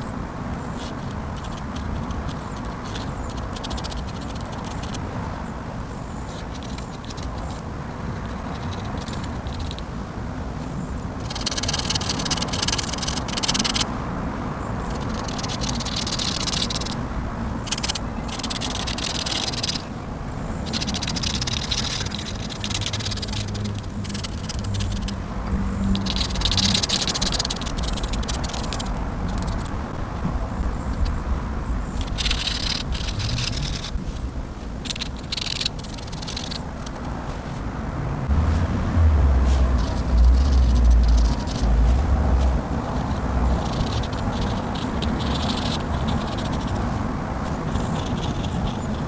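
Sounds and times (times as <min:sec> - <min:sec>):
steady low hum: 0:00.0 - 0:49.0
pen nib scratching on paper: 0:00.8 - 0:05.0, 0:06.3 - 0:07.6, 0:08.2 - 0:09.8, 0:11.2 - 0:13.9, 0:14.9 - 0:17.0, 0:17.7 - 0:19.9, 0:20.6 - 0:30.0, 0:32.0 - 0:34.0, 0:34.8 - 0:37.2, 0:39.8 - 0:49.0.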